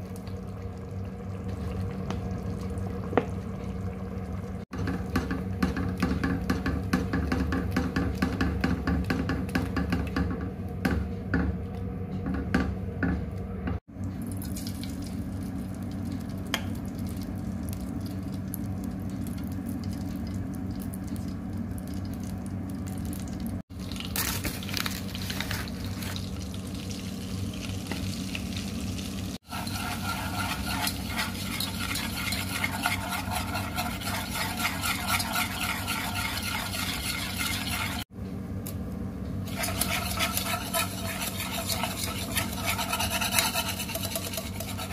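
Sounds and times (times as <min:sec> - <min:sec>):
food sizzling in a pan: 0:23.8 - 0:38.1
spoon stirring and scraping pan: 0:29.4 - 0:38.1, 0:39.4 - 0:44.9.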